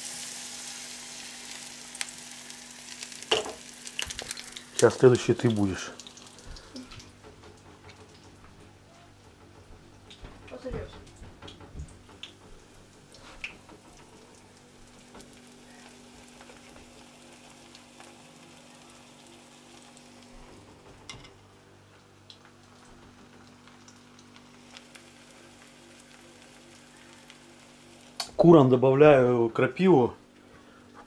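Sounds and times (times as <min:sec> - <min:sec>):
light clicks and knocks: 0:09.2 - 0:14.1
faint steady hiss: 0:12.2 - 0:31.0.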